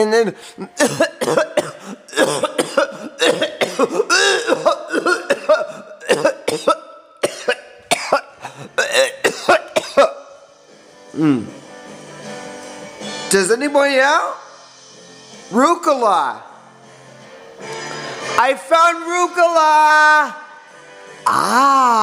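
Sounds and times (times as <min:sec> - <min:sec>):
person coughing: 0:00.7 - 0:10.3, 0:11.2 - 0:11.5.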